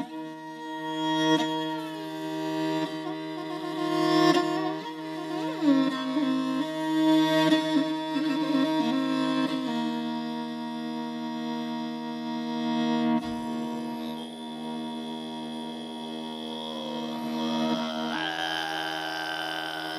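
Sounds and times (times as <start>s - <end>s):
bowed fiddle solo: 0.0s - 19.9s.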